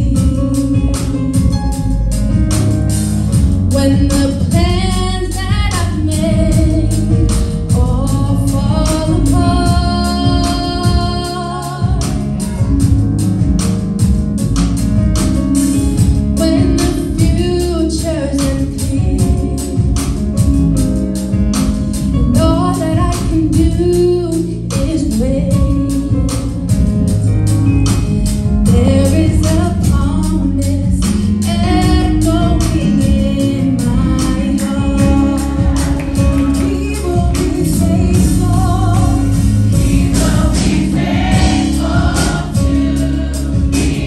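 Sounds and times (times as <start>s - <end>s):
band accompaniment: 0.0s - 44.0s
steady drum beat: 0.0s - 44.0s
choir singing gospel song: 34.6s - 44.0s.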